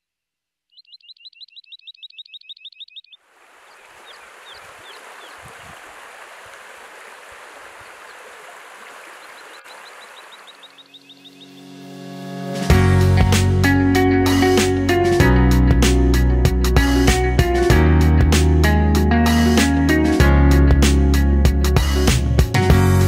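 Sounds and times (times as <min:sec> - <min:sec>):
faint bird chirps: 0:00.6 - 0:05.8, 0:07.4 - 0:11.7
small bird chirping rapidly: 0:00.6 - 0:05.8, 0:07.7 - 0:11.7
stream running over stones: 0:03.2 - 0:10.8
music: 0:11.0 - 0:23.0.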